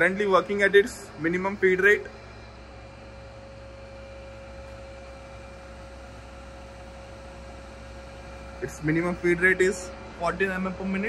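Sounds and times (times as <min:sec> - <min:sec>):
milling machine electric hum: 0:00.0 - 0:11.0.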